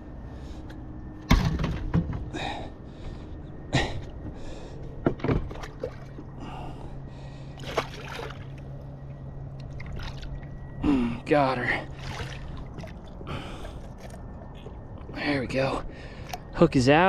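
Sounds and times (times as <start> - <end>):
man breathing hard: 2.3 - 5.0, 6.3 - 7.6, 13.2 - 14.3, 15.8 - 16.5
fish splashing in water: 7.6 - 8.6, 9.6 - 10.4, 11.9 - 14.2.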